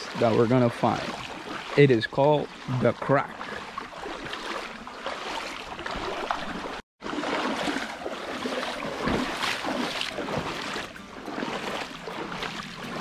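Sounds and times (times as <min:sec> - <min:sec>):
paddles splashing in river water: 0:00.0 - 0:13.0
water trickling: 0:00.0 - 0:13.0.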